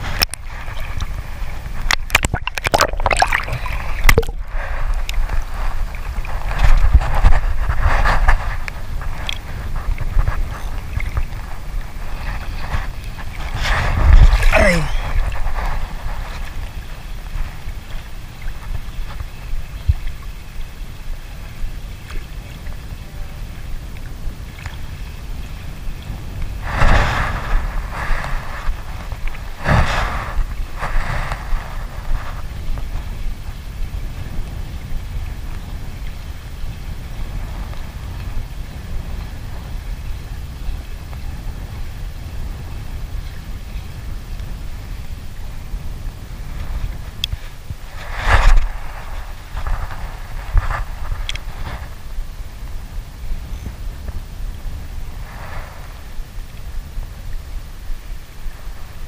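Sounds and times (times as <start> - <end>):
underwater gurgling and pops: 0.0 - 16.7
seawater sloshing and splashing: 0.0 - 39.9, 46.2 - 52.7
small waves lapping against boat: 0.0 - 59.0
wind buffeting microphone: 0.0 - 59.0.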